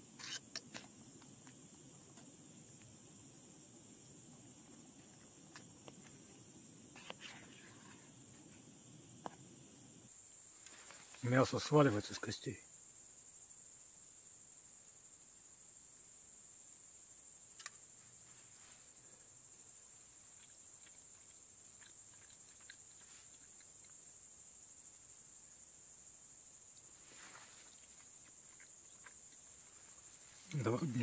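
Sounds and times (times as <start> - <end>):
insects chirring: 0.0 - 31.0
sharp click: 17.6 - 17.8.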